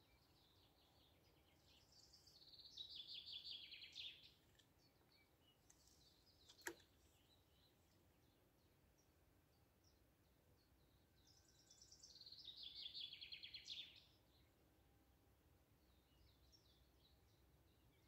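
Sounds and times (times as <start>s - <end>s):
songbird singing: 0.0s - 18.0s
sharp click: 6.4s - 6.9s.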